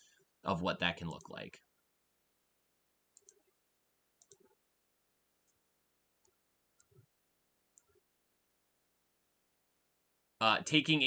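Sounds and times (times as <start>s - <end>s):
computer mouse clicks: 3.1s - 3.6s, 4.2s - 4.6s, 6.2s - 7.1s, 7.7s - 8.0s.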